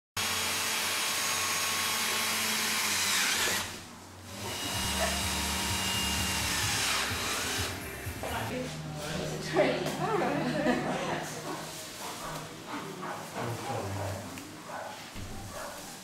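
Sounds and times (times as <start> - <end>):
cordless drill whining: 0.2 - 7.8.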